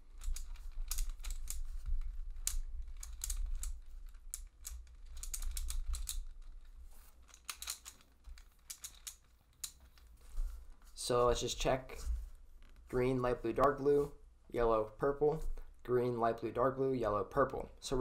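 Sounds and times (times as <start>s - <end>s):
plastic puzzle clicking: 0.1s - 10.1s.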